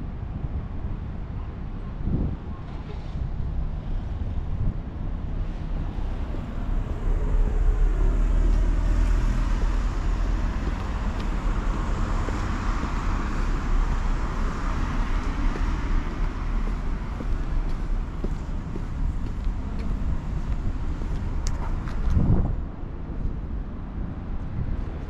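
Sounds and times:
cars going by: 5.4s - 22.6s.

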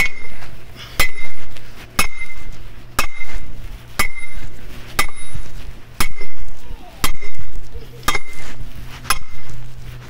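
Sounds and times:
sledgehammer clanging on steel post: 0.0s - 0.4s, 1.0s - 1.4s, 2.0s - 4.4s, 5.0s - 5.4s, 6.0s - 6.4s, 9.1s - 9.5s.

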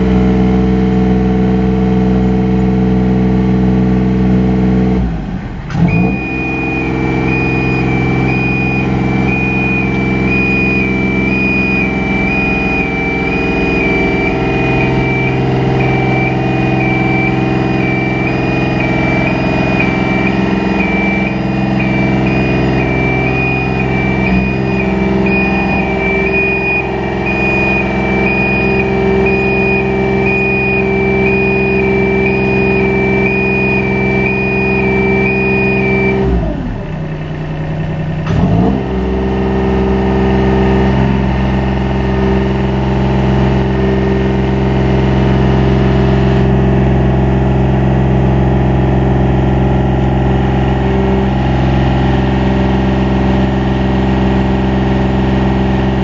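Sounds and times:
lift engine running: 4.2s - 56.0s
two-tone warning alarm beeping: 5.8s - 36.9s.

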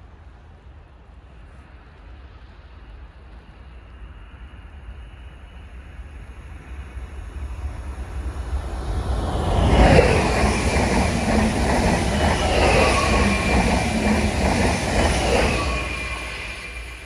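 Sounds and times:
high steady train whine: 0.0s - 17.0s
train wheel and rail noise: 0.0s - 17.0s.

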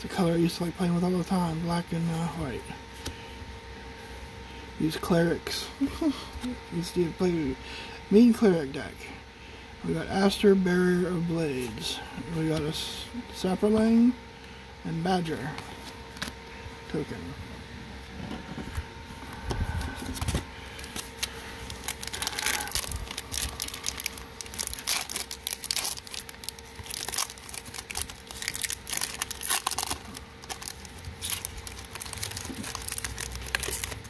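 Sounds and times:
foil wrapper crinkling and tearing: 20.1s - 34.0s.

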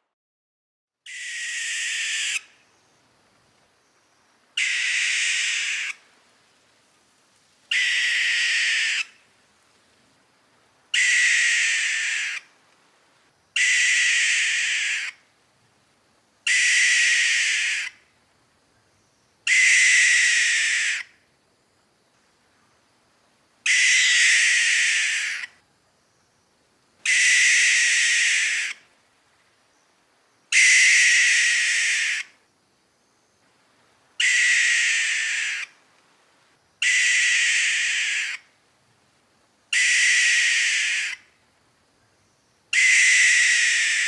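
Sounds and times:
owl hissing screeches: 1.1s - 2.5s, 4.6s - 6.0s, 7.7s - 9.2s, 11.0s - 12.5s, 13.6s - 15.2s, 16.5s - 18.0s, 19.5s - 21.1s, 23.7s - 25.5s, 27.0s - 28.8s, 30.5s - 32.4s, 34.2s - 35.8s, 36.8s - 38.4s, 39.7s - 41.3s, 42.7s - 44.0s.

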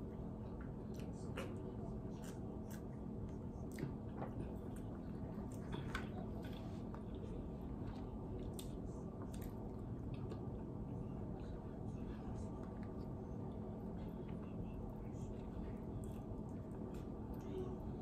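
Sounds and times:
person chewing and lip smacking: 6.9s - 11.7s.

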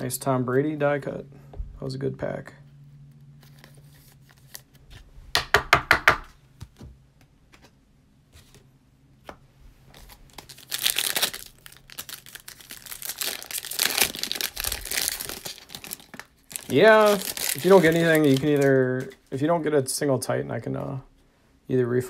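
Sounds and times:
foil wrapper crinkling and tearing: 9.9s - 19.1s
plastic sleeve crackling: 9.9s - 19.3s.

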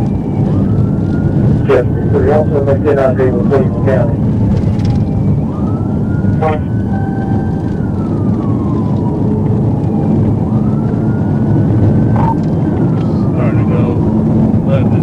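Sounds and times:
car engine and road noise: 0.0s - 15.0s
police siren wailing: 0.0s - 15.0s.

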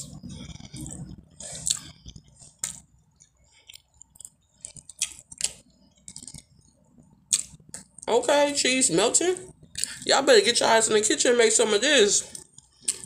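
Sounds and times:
person chewing with wet smacks: 0.0s - 8.1s, 9.5s - 10.0s, 12.3s - 13.0s.

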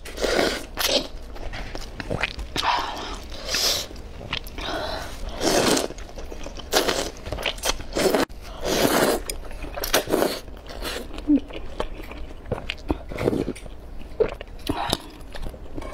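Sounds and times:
noodles slurping: 2.0s - 12.0s.

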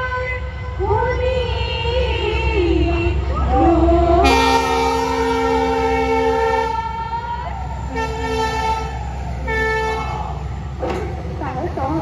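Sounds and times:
horn pipe blowing held notes: 4.2s - 7.0s, 7.9s - 10.3s.

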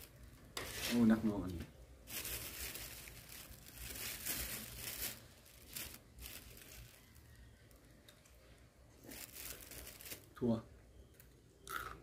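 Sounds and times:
crunchy chewing of greens: 9.0s - 10.4s.

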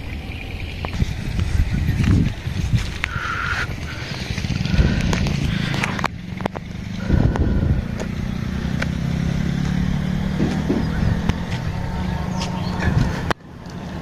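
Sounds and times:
small vehicle engine humming: 0.0s - 14.0s
sharp rattles and knocks: 3.8s - 11.7s.

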